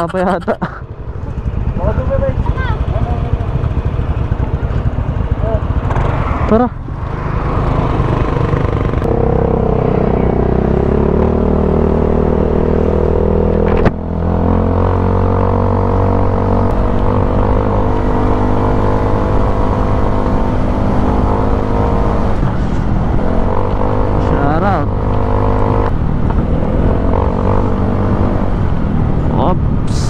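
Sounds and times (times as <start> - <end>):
motor scooter engine running: 0.0 - 11.3
wind noise rumbling: 6.0 - 30.0.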